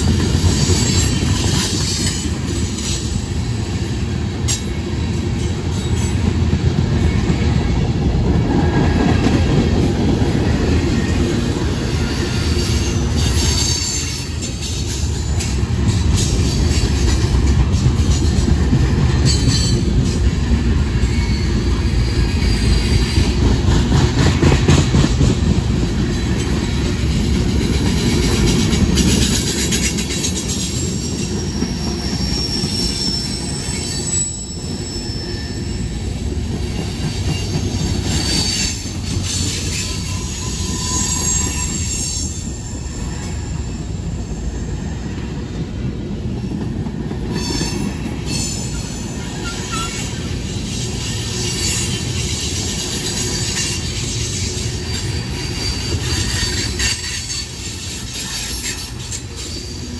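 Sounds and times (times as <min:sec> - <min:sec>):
train wheels rumbling on rails: 0:00.0 - 0:59.9
high-pitched wheel squeals: 0:29.3 - 0:36.2, 0:37.2 - 0:44.4, 0:47.3 - 0:59.9.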